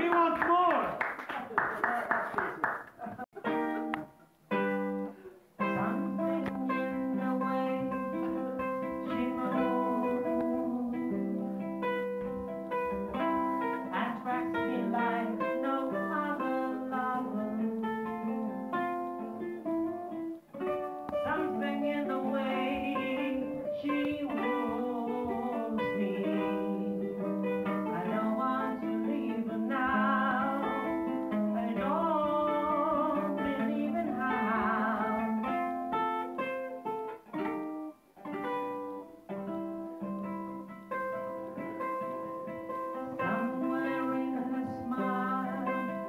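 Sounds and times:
ukulele strummed and plucked: 3.1s - 46.0s
man singing: 5.6s - 11.6s, 21.2s - 27.3s, 27.9s - 35.4s, 43.2s - 46.0s.

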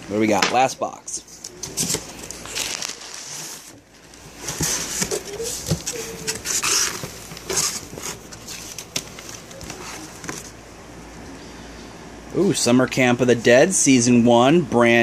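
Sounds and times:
cardboard rustling and scraping: 1.2s - 10.6s.

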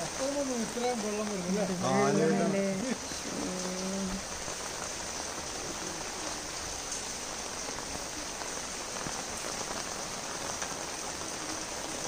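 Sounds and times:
steady rain on a flooded street: 0.0s - 12.0s.

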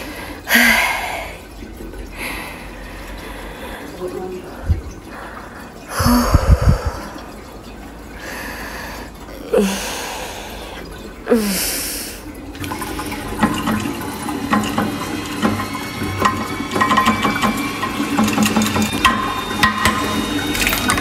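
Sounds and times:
water rushing and gurgling: 0.0s - 21.0s
breathy rushes with falling tone: 4.6s - 7.2s.

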